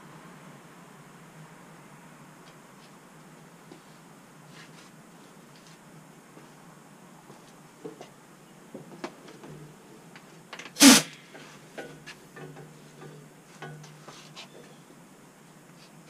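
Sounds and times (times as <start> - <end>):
short loud hissing burst: 10.8 - 11.3.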